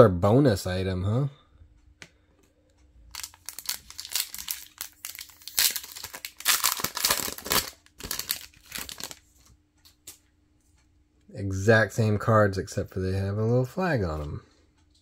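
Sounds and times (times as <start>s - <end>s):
plastic wrapper tearing: 3.1s - 9.2s
plastic wrapper crinkling: 3.1s - 9.5s.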